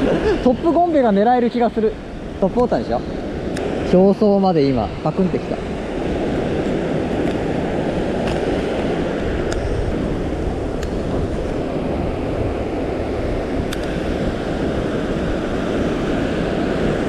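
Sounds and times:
surf washing: 0.0 - 17.0
wind buffeting microphone: 0.0 - 17.0
faint sharp clicks: 13.7 - 14.0.

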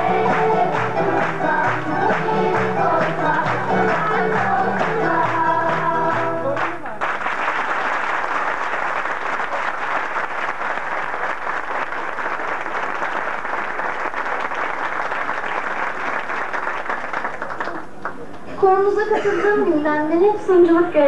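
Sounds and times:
audience applauding: 5.7 - 18.5.

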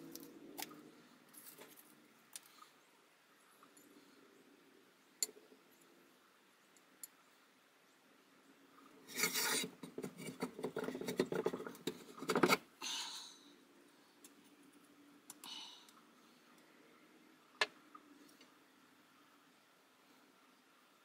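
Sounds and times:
metal parts scraping and rasping: 9.0 - 12.6.

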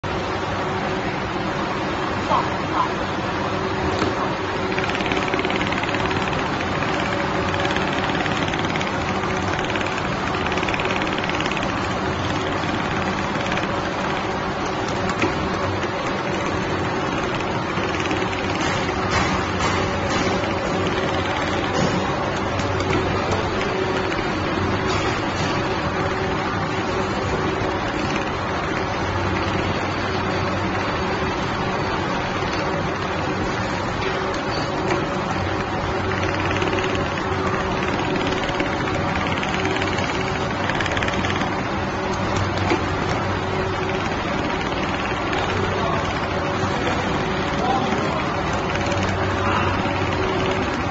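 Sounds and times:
sewing machine stitching: 4.6 - 25.8, 35.6 - 50.9.

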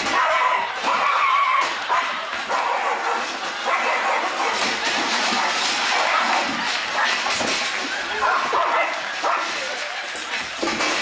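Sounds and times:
dog yowling high: 0.0 - 4.5
dog barking frantically: 0.0 - 7.3, 8.1 - 9.7.

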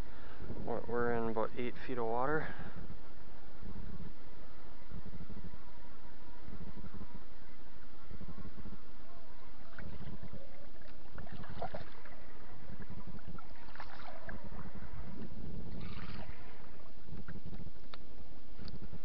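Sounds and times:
wind rumbling on microphone: 0.0 - 19.0
light water splashes: 9.4 - 18.8.

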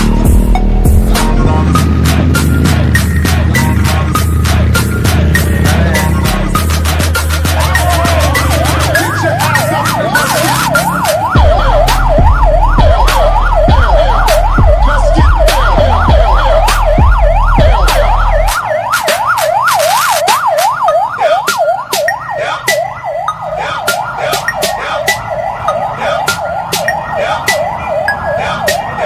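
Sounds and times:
electronic siren yelping: 0.0 - 29.0
car audio bass thumps: 11.3 - 18.5.

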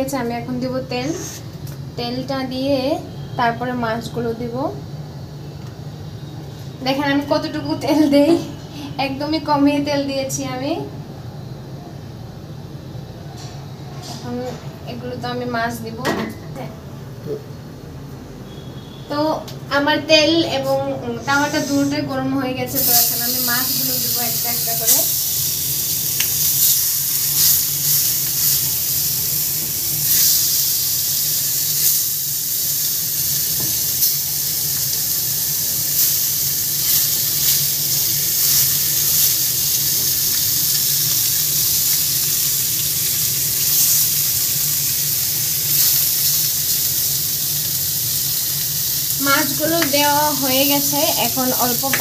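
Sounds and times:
crackles and pops of frying: 22.7 - 52.0
fish sizzling in oil: 22.7 - 52.0.

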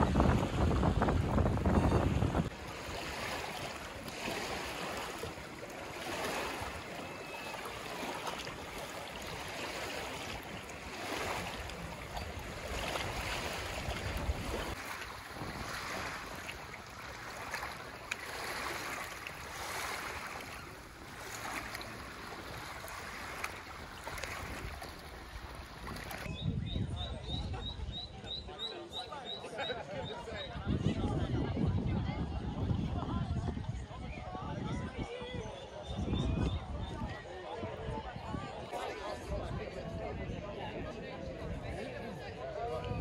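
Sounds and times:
wind on microphone: 0.0 - 5.0, 10.4 - 16.4, 23.1 - 28.3, 30.5 - 43.0
small waves lapping shore: 0.0 - 26.3.

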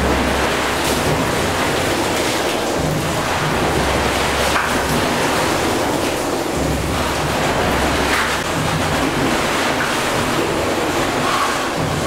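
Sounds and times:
steam pumping engines running: 0.0 - 12.0.

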